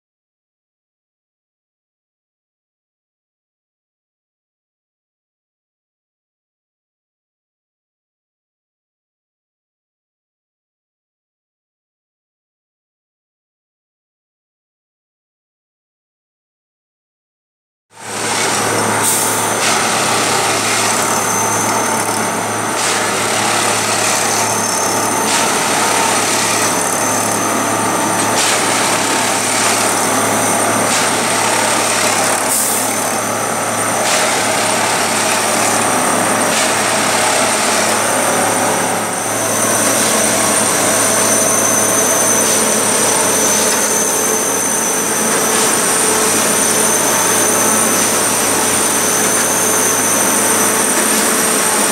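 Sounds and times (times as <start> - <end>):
track tamping machine running: 18.0 - 51.9.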